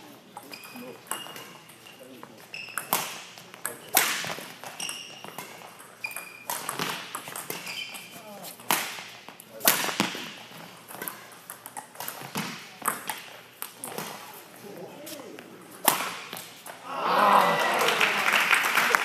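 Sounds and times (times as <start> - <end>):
shoes squeaking on court: 0.0 - 16.8
racket striking shuttlecock: 15.8 - 16.5.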